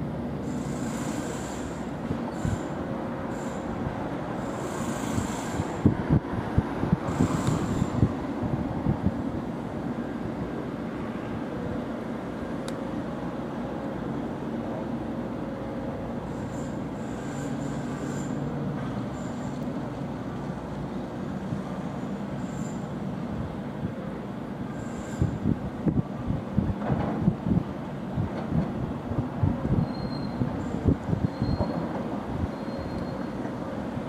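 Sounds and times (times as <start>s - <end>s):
short high-pitched squeals: 0.5s - 3.8s, 16.3s - 18.5s, 19.1s - 19.6s, 21.9s - 22.9s, 24.7s - 25.4s, 29.7s - 33.4s.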